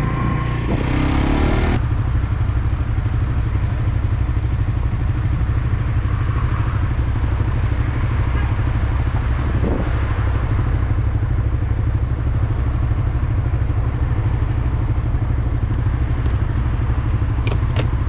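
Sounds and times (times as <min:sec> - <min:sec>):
motorcycle engine idling: 0:00.0 - 0:18.0.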